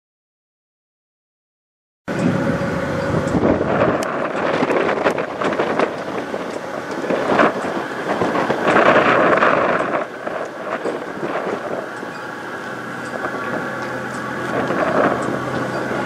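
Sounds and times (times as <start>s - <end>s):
low truck rumble: 2.1s - 16.0s
wind buffeting microphone: 2.1s - 16.0s.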